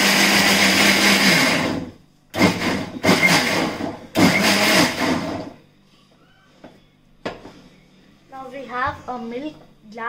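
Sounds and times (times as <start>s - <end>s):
electric mixer grinder blending: 0.0s - 5.5s.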